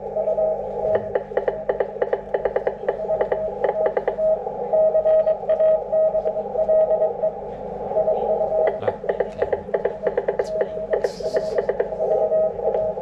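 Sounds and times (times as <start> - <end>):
static crackles: 0.1 - 13.0
receiver hiss: 8.5 - 13.0.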